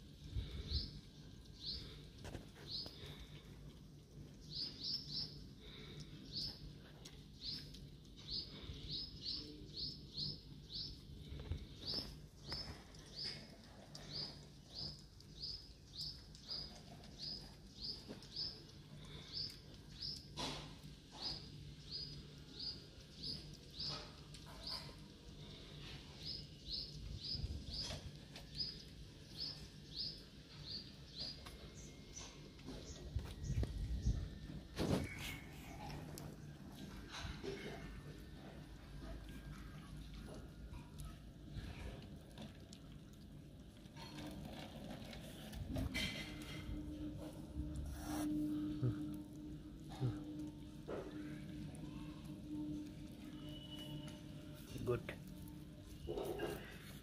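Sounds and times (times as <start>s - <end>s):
low background hum: 0.0s - 57.0s
small bird chirping: 4.4s - 20.3s, 21.1s - 34.4s.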